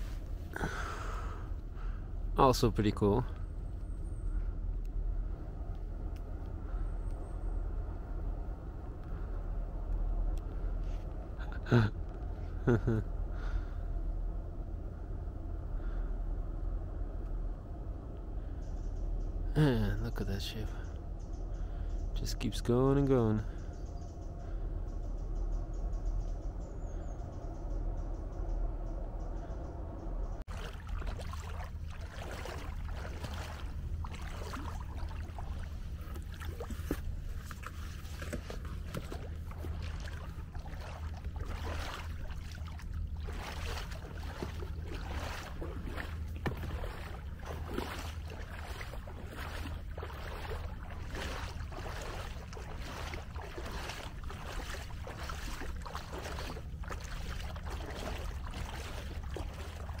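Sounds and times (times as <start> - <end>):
wind rumble on microphone: 3.3 - 20.1, 23.5 - 60.0
paddle splashing in water: 30.5 - 60.0.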